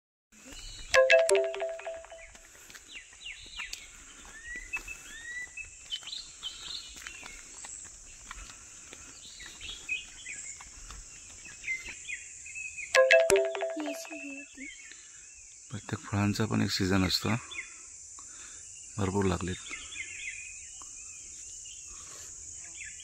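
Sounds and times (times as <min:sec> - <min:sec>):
insects droning: 0:14.2 - 0:23.0.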